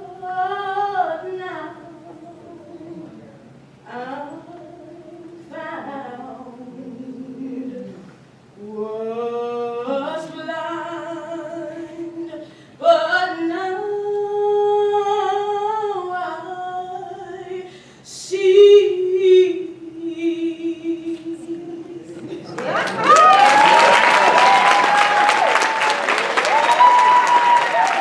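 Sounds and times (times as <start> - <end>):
woman singing a cappella: 0.0 - 3.2, 3.8 - 22.4.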